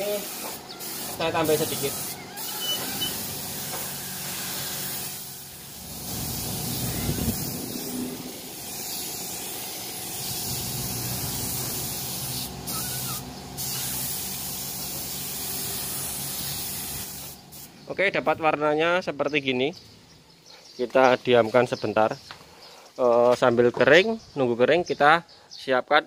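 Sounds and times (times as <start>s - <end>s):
spray gun hissing: 0.0s - 17.8s.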